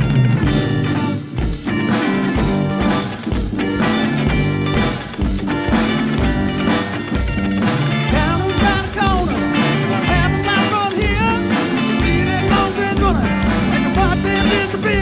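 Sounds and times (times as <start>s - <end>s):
acoustic guitar strumming: 0.0s - 15.0s
electric bass guitar: 0.0s - 15.0s
man singing: 8.1s - 15.0s.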